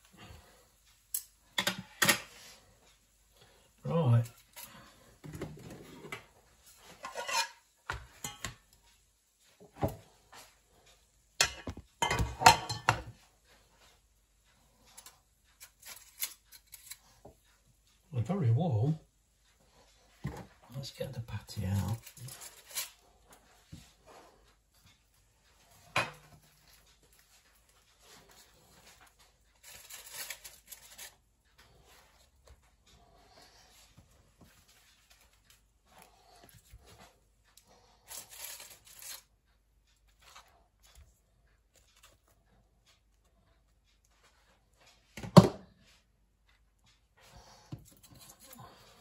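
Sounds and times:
kitchenware clattering: 1.6s - 2.4s, 6.9s - 8.7s, 11.4s - 13.2s, 25.8s - 26.6s
tongs scraping in foil basket: 15.0s - 17.2s, 21.6s - 23.3s, 26.6s - 32.0s, 38.0s - 39.3s.

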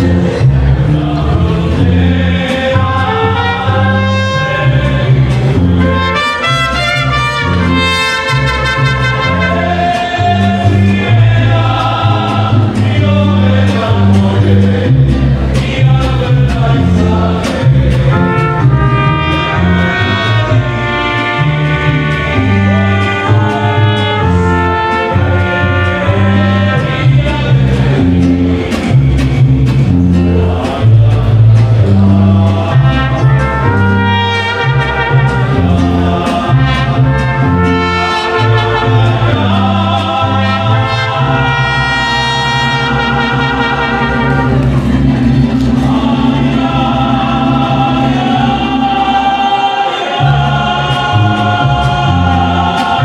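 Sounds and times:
guitarron bass notes: 0.0s - 49.3s
strummed guitars: 0.0s - 53.0s
trumpets playing melody: 2.9s - 10.5s, 18.1s - 27.4s, 32.7s - 45.0s.

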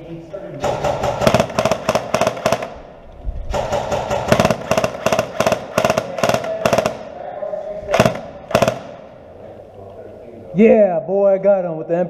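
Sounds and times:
airsoft gun rapid shots: 0.6s - 2.9s, 3.5s - 7.1s, 7.9s - 9.1s.

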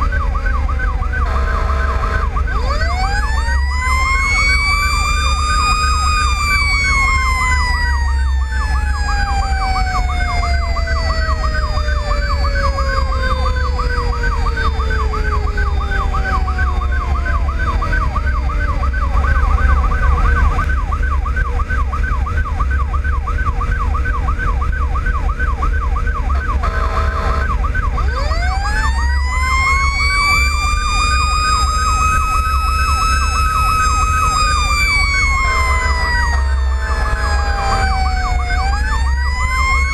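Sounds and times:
diesel engine and road rumble: 0.0s - 39.9s
electronic siren yelping: 0.0s - 39.9s
mechanical siren wailing: 0.0s - 39.9s
horn blast: 26.4s - 27.5s.

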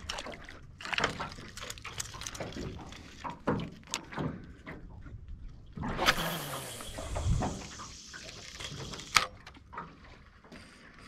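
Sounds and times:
water splashes and tackle knocks: 0.0s - 6.1s, 6.9s - 10.7s
fishing rod cast whoosh: 5.8s - 7.8s.

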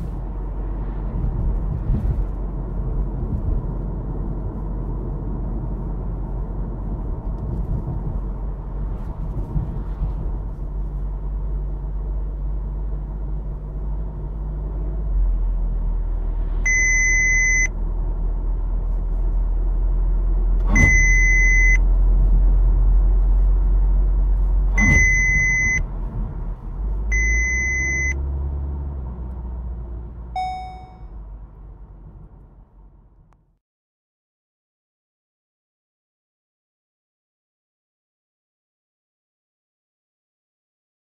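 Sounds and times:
car cabin and road rumble: 0.0s - 33.6s
car warning tone: 16.7s - 17.7s, 20.7s - 21.8s, 24.8s - 25.8s, 27.1s - 28.2s, 30.4s - 31.1s.

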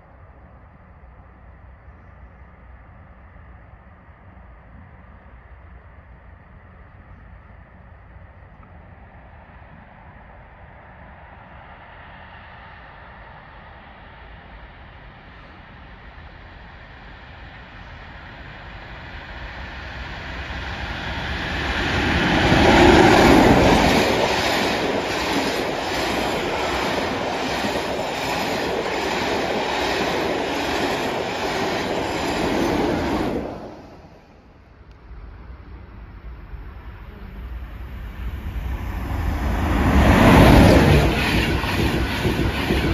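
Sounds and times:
train passing at speed: 0.0s - 42.9s
wheels clacking on rails: 21.1s - 33.9s, 38.6s - 42.9s.

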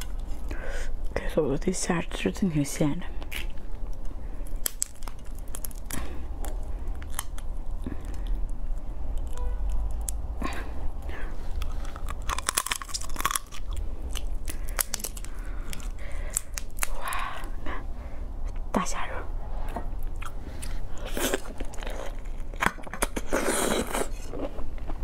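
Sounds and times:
prawn shell crackling as peeled: 3.2s - 8.3s, 11.5s - 17.5s.

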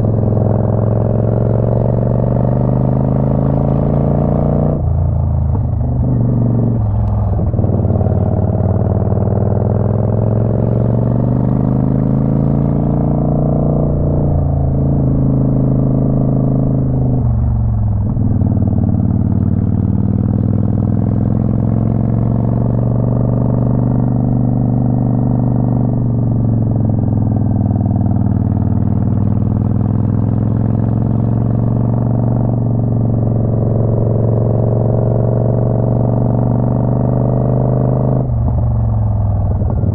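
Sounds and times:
motorcycle engine running: 13.5s - 39.9s.

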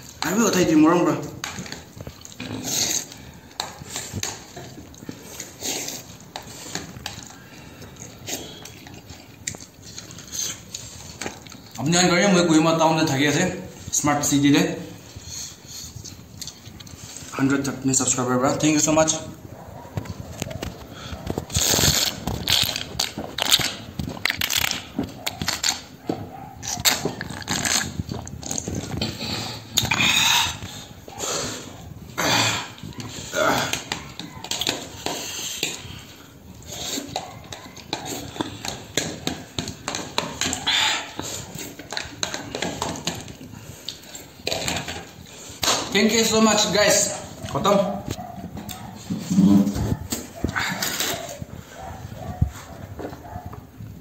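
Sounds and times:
person slurping and chewing: 1.4s - 11.8s, 21.0s - 25.9s, 26.6s - 45.9s
person slurping broth: 2.2s - 4.4s, 27.3s - 33.9s.

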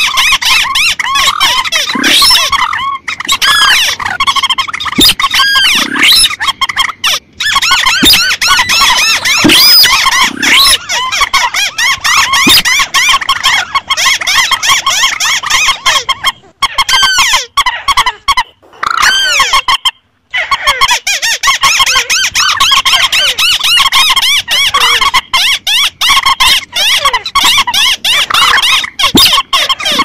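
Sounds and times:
rail birds squeaky chirping: 0.0s - 30.0s.

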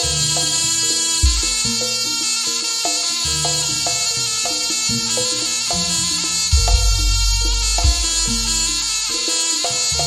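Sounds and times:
percussion ensemble music with melody: 0.0s - 10.0s
deep heavy drum strokes: 1.2s - 1.8s, 5.7s - 9.2s.

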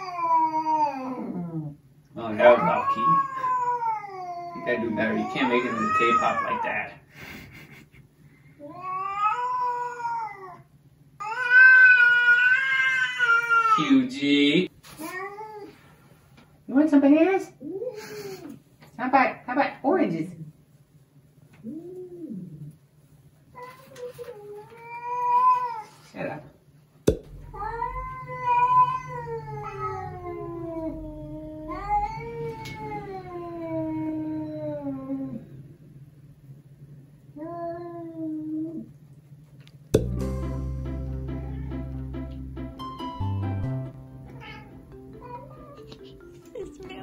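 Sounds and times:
cat yowling: 2.4s - 6.8s, 11.2s - 13.9s, 27.5s - 35.5s, 44.3s - 45.8s.

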